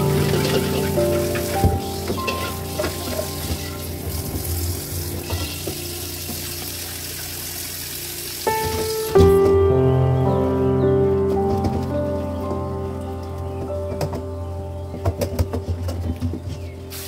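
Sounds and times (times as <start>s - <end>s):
utensils clacking against pan: 0.0s - 4.0s
background music: 0.0s - 17.0s.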